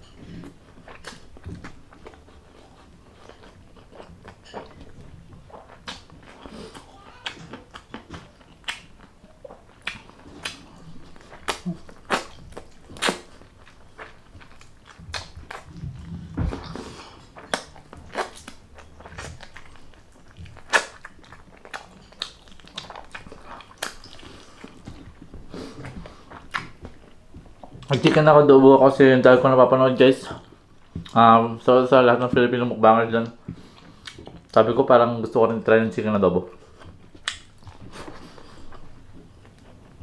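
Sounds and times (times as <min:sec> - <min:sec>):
person chewing food: 0:00.0 - 0:28.2, 0:33.2 - 0:34.6, 0:36.5 - 0:40.0
wet mouth clicks and snaps: 0:37.2 - 0:37.6.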